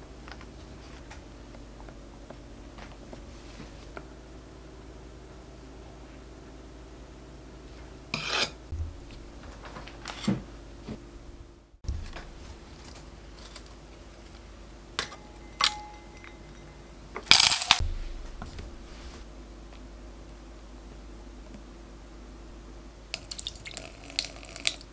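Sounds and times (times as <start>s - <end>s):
metal spatula scraping mould: 8.1s - 8.6s
clinks against glass bowl: 15.0s - 16.9s.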